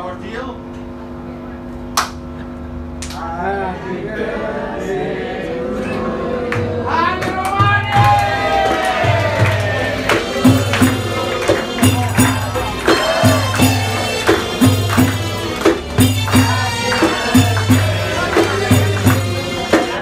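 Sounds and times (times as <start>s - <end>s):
frame drums beating: 6.6s - 20.0s
held melodic line: 9.9s - 20.0s.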